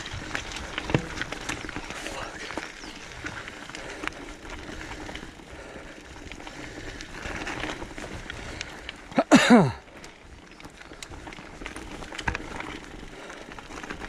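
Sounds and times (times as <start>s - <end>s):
bike rattling: 0.0s - 14.0s
bike tyres crunching over stones: 0.0s - 14.0s
person grunting: 9.2s - 9.8s.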